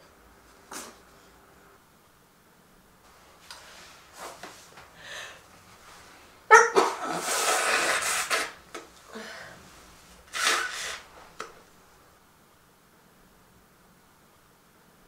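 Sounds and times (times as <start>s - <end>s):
woman sneezing: 6.5s - 8.0s
breathy nasal noise into tissue: 7.0s - 8.6s, 10.3s - 11.1s.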